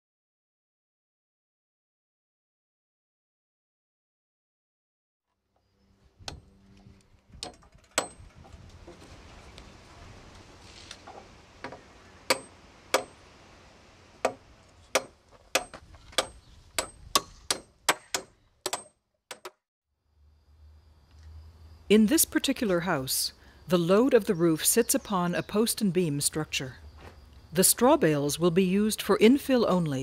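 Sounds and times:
hammer driving nails into wood: 11.6 - 13.2, 14.2 - 19.6.

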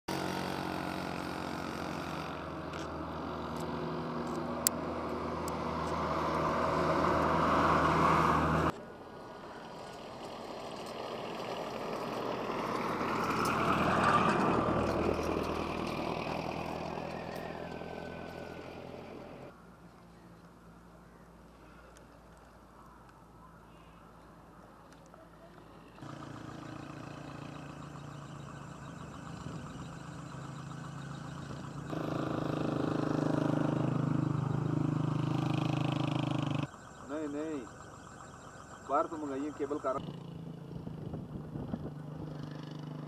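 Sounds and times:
vehicle passing by: 0.1 - 19.6, 25.4 - 43.0
vehicle engine running: 25.0 - 43.0.

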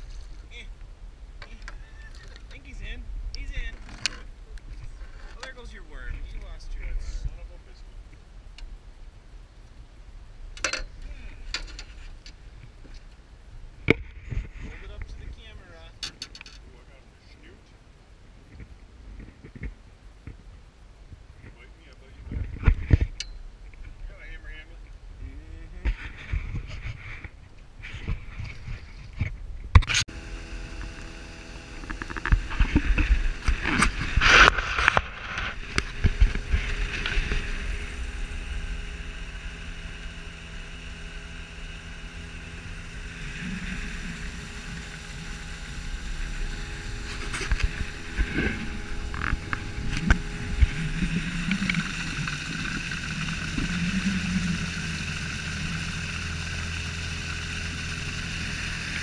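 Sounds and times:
motor humming: 29.8 - 59.0.

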